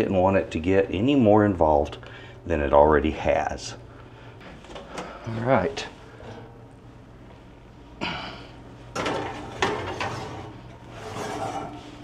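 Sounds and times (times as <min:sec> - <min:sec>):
metal rack scraping and rattling: 0:09.0 - 0:12.0.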